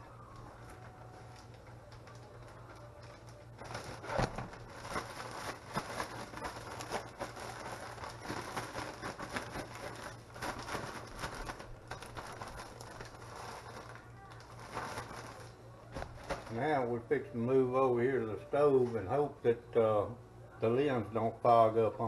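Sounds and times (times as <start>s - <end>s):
plastic bag crinkling: 0.0s - 16.9s.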